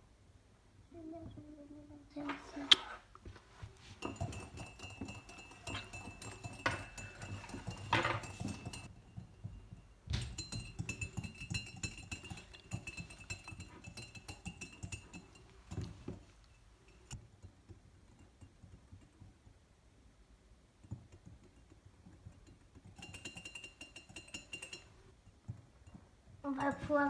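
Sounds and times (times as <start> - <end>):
wire whisk clinking in mug: 3.9 - 19.2, 20.9 - 26.8.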